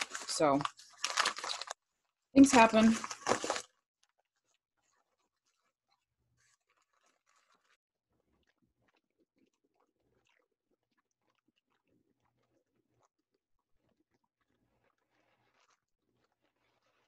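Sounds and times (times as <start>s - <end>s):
packing paper crinkling: 0.0s - 1.8s, 2.4s - 3.7s.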